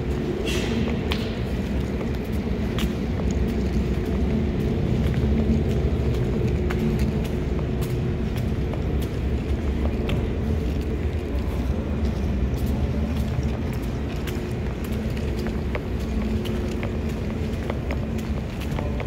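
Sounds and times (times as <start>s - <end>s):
footsteps on tiled platform: 0.0s - 19.0s
metro station rumble and hum: 0.0s - 19.0s.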